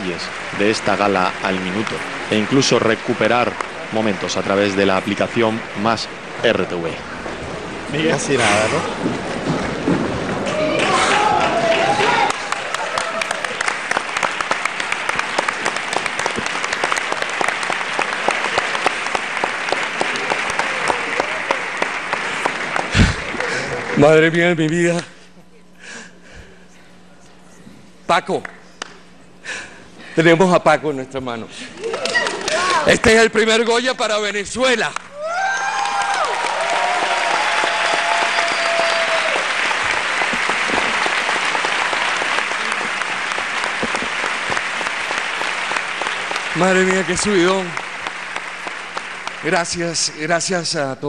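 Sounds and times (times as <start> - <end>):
audience applauding: 0.0 - 24.5, 31.7 - 33.8, 35.0 - 50.5
person cheering: 10.5 - 13.6, 35.1 - 39.6.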